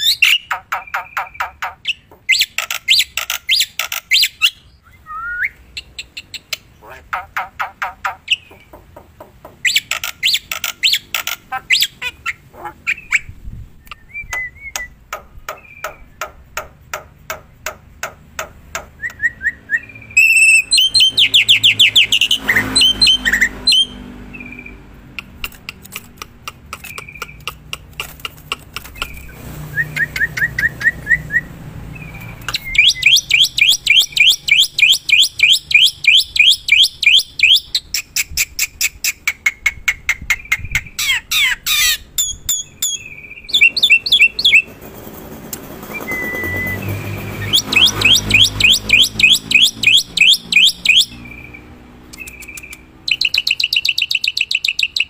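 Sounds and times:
bird chattering song: 0:00.0 - 0:04.8, 0:05.4 - 0:44.8, 0:45.8 - 0:55.0
bird whistled notes: 0:19.0 - 0:24.7, 0:29.1 - 0:37.7, 0:42.2 - 0:44.7, 0:45.9 - 0:51.4.

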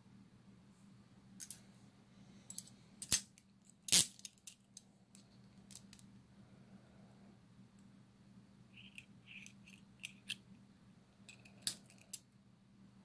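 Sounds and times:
handcuffs clicking and clinking: 0:02.5 - 0:04.9, 0:08.8 - 0:10.4, 0:11.3 - 0:12.3.

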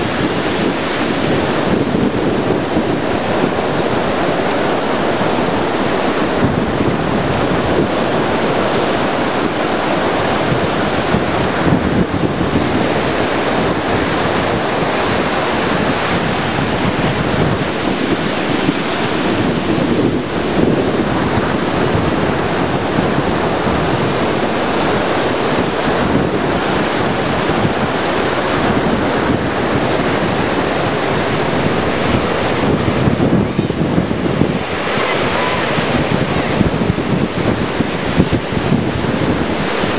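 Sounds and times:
heavy surf on beach: 0:00.0 - 0:39.9
wind buffeting microphone: 0:00.0 - 0:39.9.

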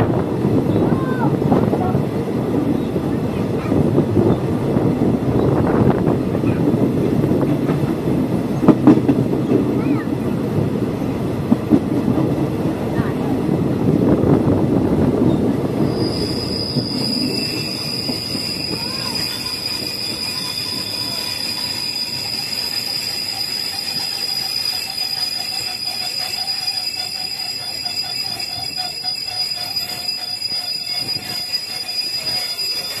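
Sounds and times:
rumble of train wheels: 0:00.0 - 0:33.0
train brakes squealing: 0:15.3 - 0:33.0.

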